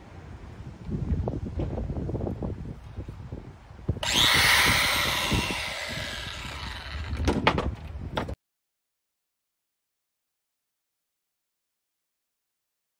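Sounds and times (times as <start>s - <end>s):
wind on microphone: 0.0s - 8.4s
angle grinder whine: 4.0s - 7.4s.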